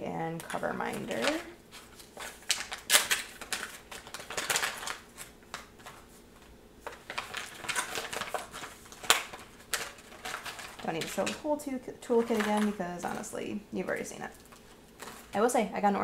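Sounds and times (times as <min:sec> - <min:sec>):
plastic packaging crinkling: 0:00.4 - 0:11.5, 0:12.1 - 0:13.3, 0:13.9 - 0:15.4
plastic items clicking and tapping: 0:02.2 - 0:06.0, 0:06.8 - 0:11.5, 0:12.1 - 0:13.2.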